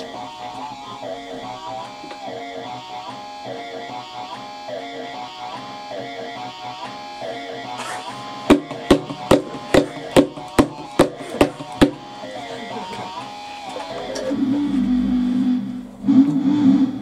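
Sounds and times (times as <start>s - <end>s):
synthesizer music: 0.0s - 17.0s
sharp clicks in even beat: 8.5s - 12.1s
low wavering synth note: 14.0s - 17.0s.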